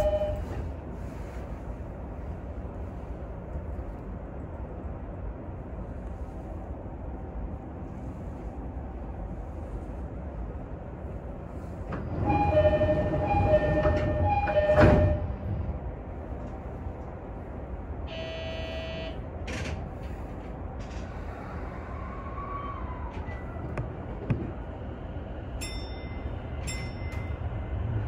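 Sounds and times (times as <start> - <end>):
low rumble of standing train: 0.0 - 28.0
train doors thudding shut: 11.8 - 15.6
short buzzer: 18.1 - 19.2.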